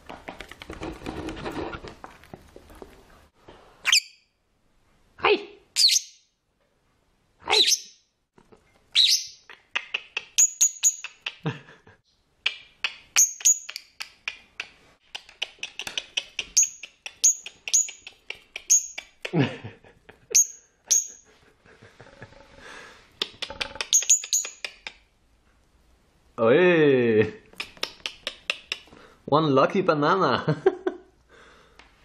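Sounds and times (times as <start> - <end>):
bird chirping: 5.8 - 6.3, 7.5 - 8.1, 8.9 - 11.5, 12.1 - 14.0, 15.1 - 19.2, 20.3 - 21.2, 23.2 - 24.9.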